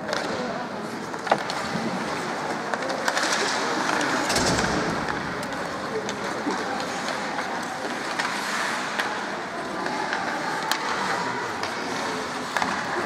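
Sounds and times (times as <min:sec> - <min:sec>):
arena noise: 0:00.0 - 0:13.0
stick and puck clacks: 0:00.0 - 0:13.0.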